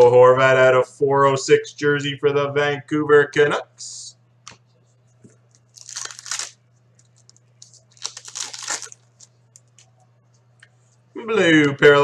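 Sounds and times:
foil wrapper crinkling and tearing: 5.6 - 9.8.

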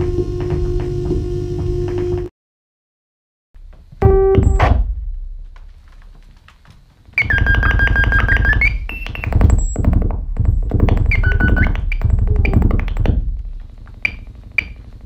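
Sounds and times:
pitched synthesizer tone: 11.0 - 13.1.

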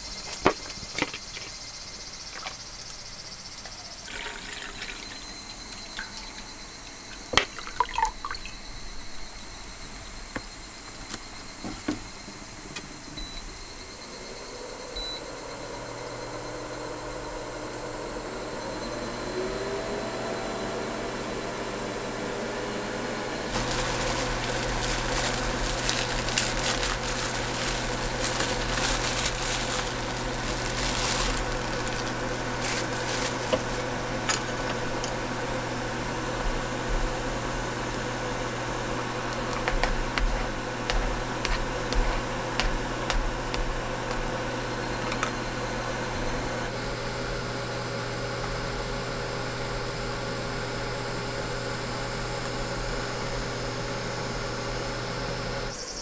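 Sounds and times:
induction cooktop humming: 0.0 - 56.0
water boiling in a pot: 3.5 - 8.6, 23.5 - 41.9.

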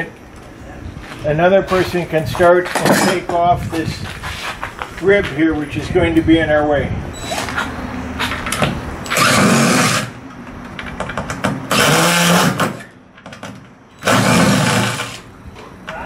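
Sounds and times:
cordless drill driving screws: 9.1 - 10.1, 11.7 - 12.9, 14.0 - 15.2.

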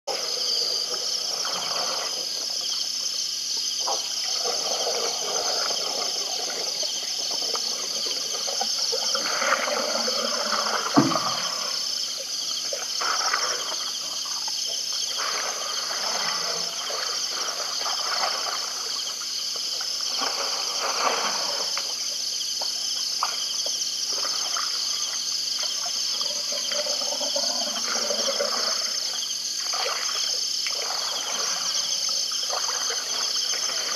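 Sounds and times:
insect chorus trilling: 0.1 - 33.9
low thump: 11.0 - 11.6.

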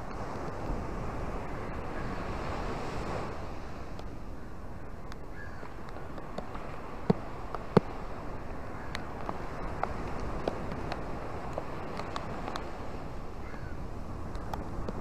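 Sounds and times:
small waves washing onto beach: 0.0 - 15.0.

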